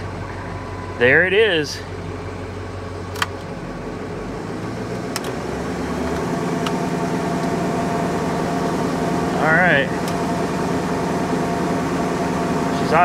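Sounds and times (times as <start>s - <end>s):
diesel engine idling high: 0.0s - 13.0s
sharp clicks: 3.1s - 3.5s.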